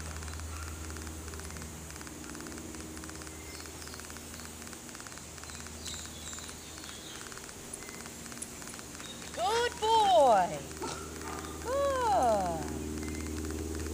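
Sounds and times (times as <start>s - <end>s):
insects chirping: 0.0s - 13.9s
low steady hum: 0.0s - 13.9s
bird chirps: 3.2s - 13.4s.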